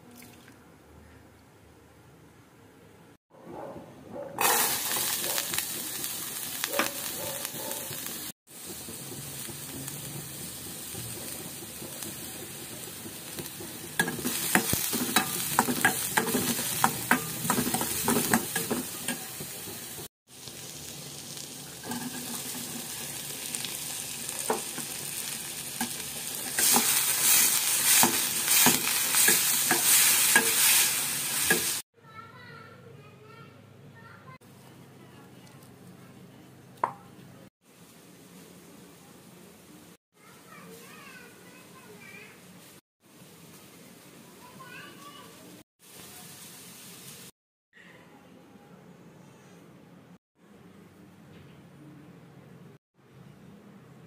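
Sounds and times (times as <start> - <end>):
vegetables sizzling in oil: 4.4 - 31.8, 37.7 - 47.3
spatula scraping a pan: 21.8 - 23.0, 24.6 - 31.8.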